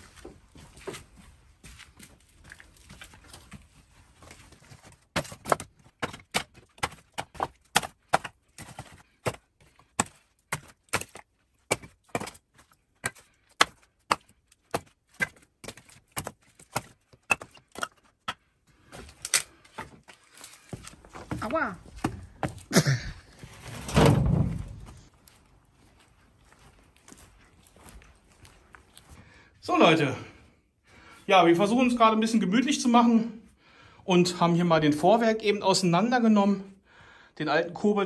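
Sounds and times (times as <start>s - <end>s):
scrap wood knocking and clattering: 23.3s - 25.1s.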